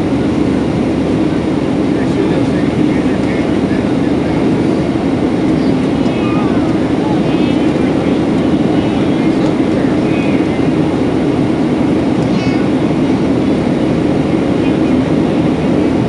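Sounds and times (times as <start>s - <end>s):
jet engines and airflow in cabin: 0.0s - 16.0s.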